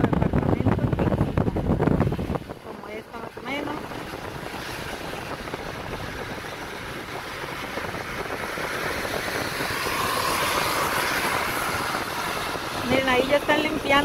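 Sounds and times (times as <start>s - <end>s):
passing car: 0.0s - 14.0s
tyre hiss on wet road: 8.6s - 12.8s.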